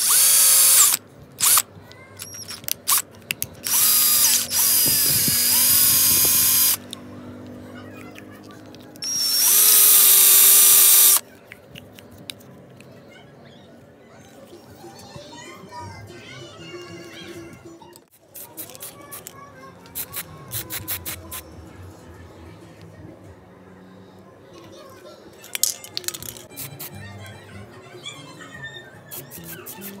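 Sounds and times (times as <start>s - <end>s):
cordless drill whining: 0.0s - 1.6s, 3.6s - 6.8s, 9.0s - 11.2s.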